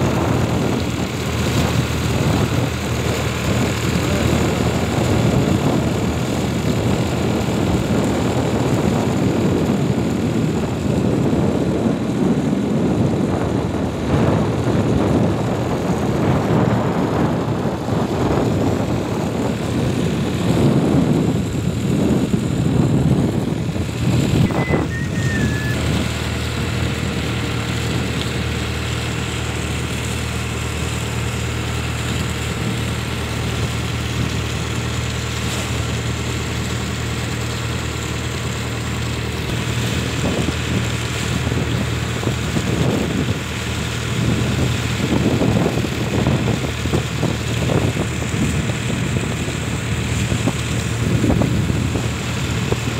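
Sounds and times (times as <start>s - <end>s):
boat engine running: 0.0s - 52.9s
wind noise on microphone: 0.0s - 52.9s
high chirp: 24.4s - 25.9s.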